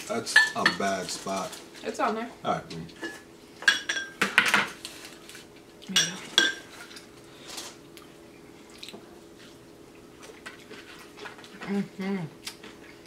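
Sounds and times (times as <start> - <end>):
glass dishes clinking: 3.0 - 4.7, 6.0 - 6.7.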